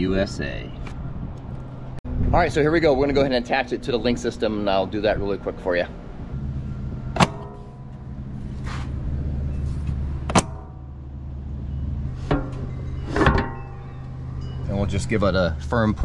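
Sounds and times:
steady low hum: 5.9s - 16.0s.

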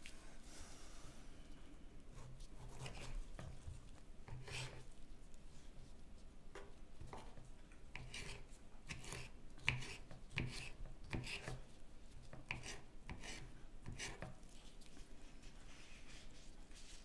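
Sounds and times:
knife chopping on wooden board: 8.0s - 11.6s.

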